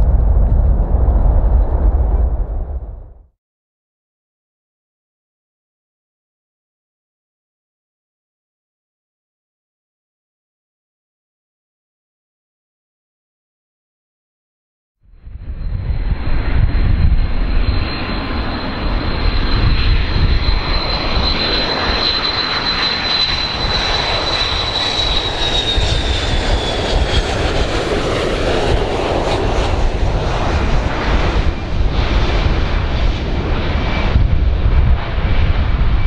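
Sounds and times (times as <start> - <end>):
jet rumble with high whine: 0.0 - 3.3, 15.1 - 36.0.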